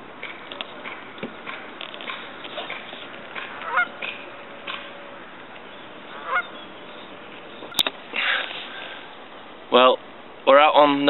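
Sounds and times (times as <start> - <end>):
geese honking: 0.8 - 9.0.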